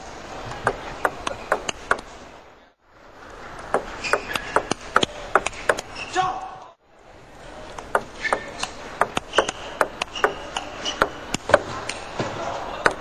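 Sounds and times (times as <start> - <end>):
table tennis ball clicking: 0.6 - 2.1, 3.6 - 6.0, 7.7 - 12.1.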